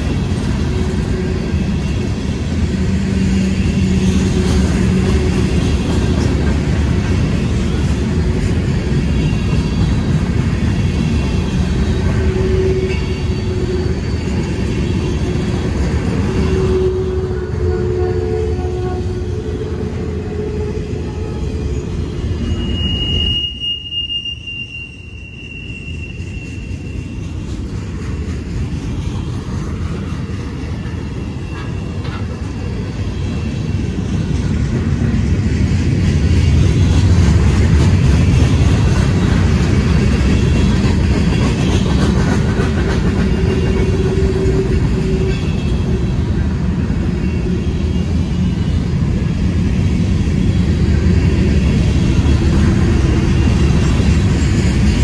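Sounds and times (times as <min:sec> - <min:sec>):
freight train wheels rumbling: 0:00.0 - 0:55.0
wheel squeal: 0:11.8 - 0:15.4, 0:20.4 - 0:27.4.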